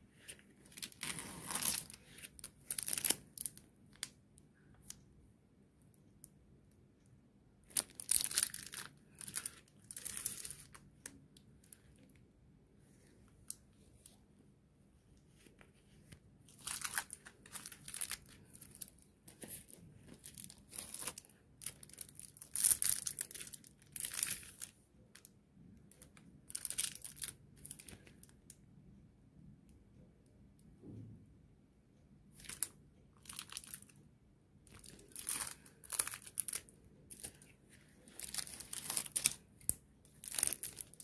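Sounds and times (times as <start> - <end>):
plastic packaging crinkling: 0.3 - 3.6, 7.7 - 10.8, 16.5 - 24.7, 26.5 - 28.0, 32.4 - 33.9, 34.7 - 41.0.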